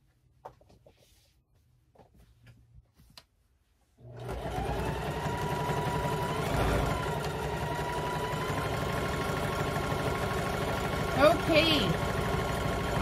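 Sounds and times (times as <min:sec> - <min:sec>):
sewing machine stitching: 0:04.0 - 0:13.0.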